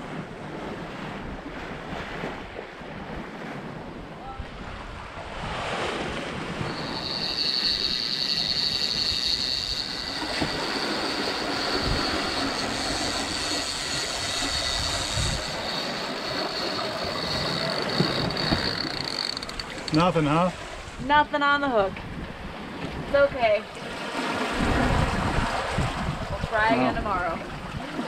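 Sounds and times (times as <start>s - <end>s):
boat wake rushing: 0.0s - 28.0s
wind: 0.0s - 28.0s
fishing reel whine: 6.4s - 20.5s.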